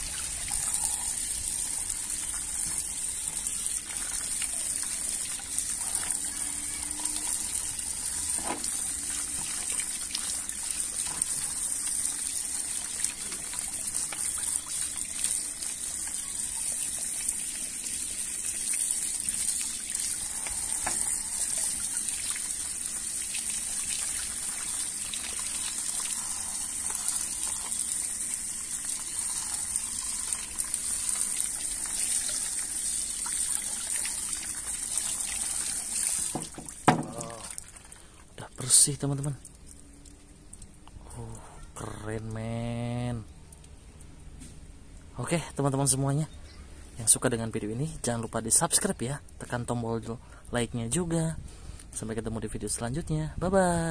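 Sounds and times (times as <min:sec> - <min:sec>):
water splashing in a bucket: 0:00.0 - 0:40.8
water trickling: 0:00.0 - 0:41.2.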